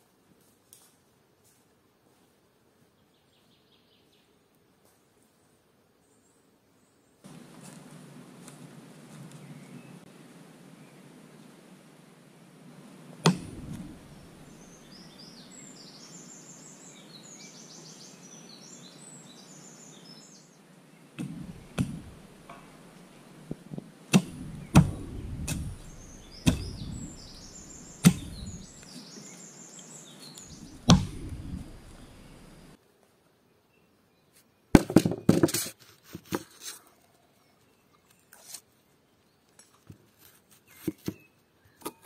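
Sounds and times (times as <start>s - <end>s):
hatchet chopping wood: 13.2s - 14.5s, 21.2s - 22.9s, 24.1s - 28.8s, 30.6s - 32.0s.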